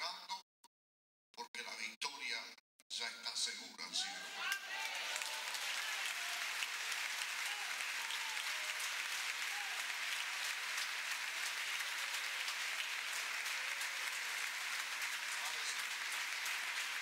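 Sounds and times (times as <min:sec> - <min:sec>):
crowd applauding: 0:04.0 - 0:17.0.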